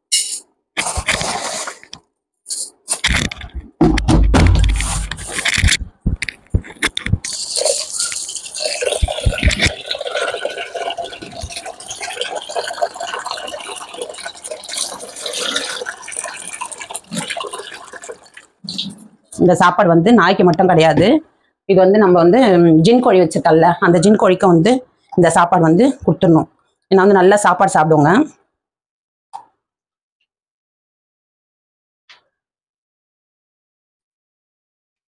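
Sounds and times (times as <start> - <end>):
water running into a vessel: 2.9 - 19.4
heavy bump: 3.6 - 7.2
clattering knocks: 3.6 - 7.3.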